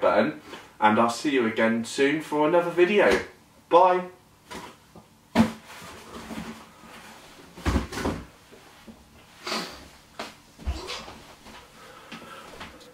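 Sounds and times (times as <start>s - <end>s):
objects thumping on wooden floor: 7.6s - 8.3s.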